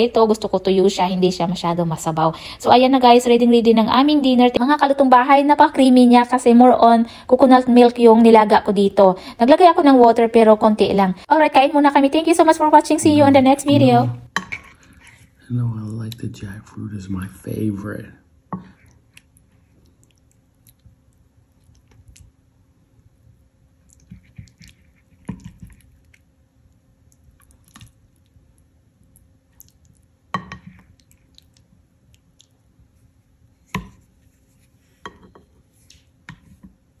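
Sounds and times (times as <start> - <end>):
soft scraping and squishing: 14.5 - 15.4, 23.8 - 26.4, 29.0 - 36.8.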